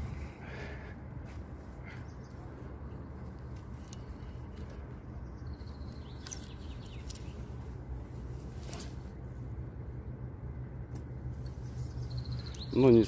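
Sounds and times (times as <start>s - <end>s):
faint bird chirps: 11.5s - 13.0s.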